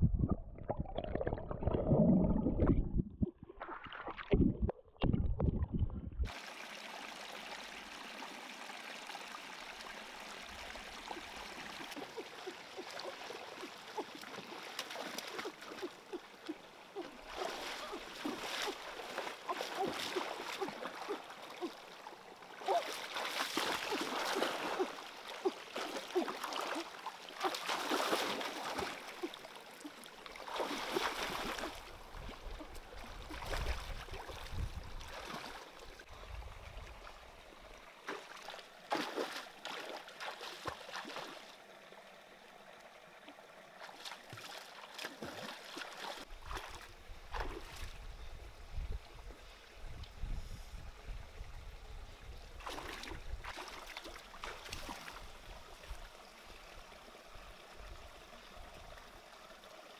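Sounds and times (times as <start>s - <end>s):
water trickling over rocks: 0.2s - 47.2s, 53.2s - 59.9s
hands splashing in stream: 11.0s - 35.9s, 38.0s - 41.6s, 43.8s - 48.0s, 52.6s - 55.5s.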